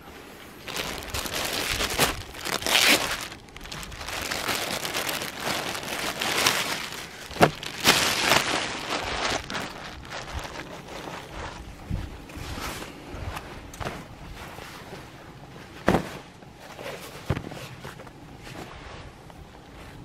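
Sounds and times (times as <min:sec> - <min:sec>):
plastic bag crinkling and rustling: 0:00.6 - 0:11.7.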